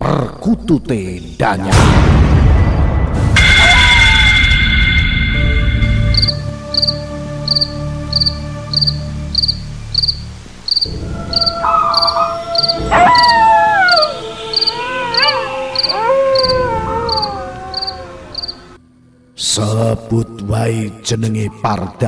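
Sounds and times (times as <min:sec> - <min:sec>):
cricket chirping: 0:02.6 - 0:19.5
wavering wail sliding down: 0:10.9 - 0:18.4.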